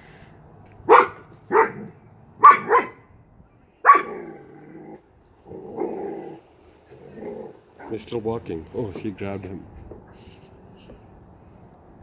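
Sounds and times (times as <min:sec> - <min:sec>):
dog barking: 0:00.9 - 0:03.0, 0:03.8 - 0:04.3
dog growling low: 0:04.1 - 0:07.7.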